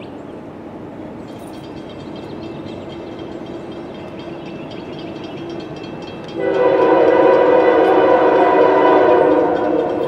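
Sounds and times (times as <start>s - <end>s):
crossing bell ringing: 1.4s - 10.0s
locomotive air horn blast: 6.4s - 10.0s.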